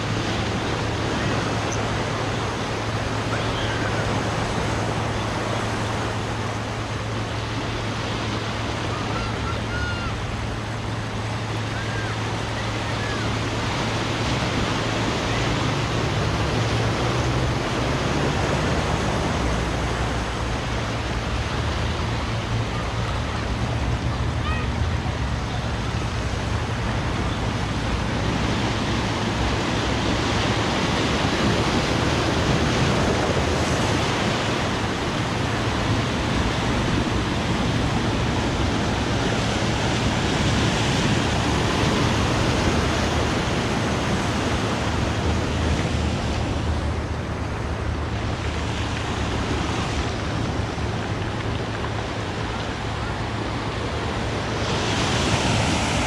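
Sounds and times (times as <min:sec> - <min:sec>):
constant low rumble: 0:00.0 - 0:56.0
sea surf washing on shore: 0:00.0 - 0:56.0.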